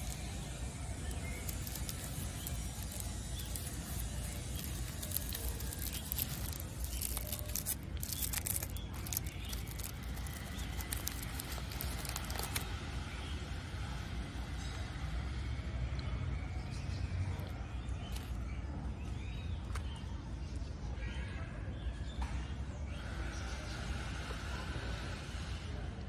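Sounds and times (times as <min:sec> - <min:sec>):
foil wrapper crinkling: 0:00.0 - 0:12.7.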